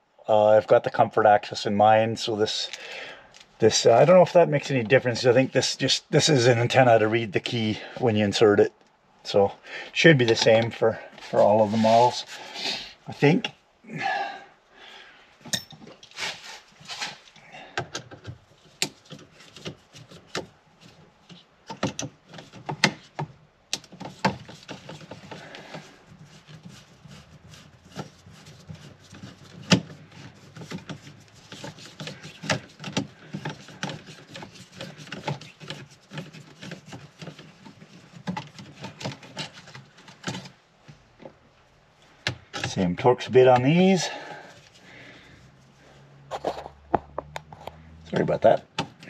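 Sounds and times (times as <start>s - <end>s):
hand tools clicking and tapping: 15.4s - 15.8s, 17.7s - 20.5s, 21.3s - 25.8s, 29.1s - 40.5s.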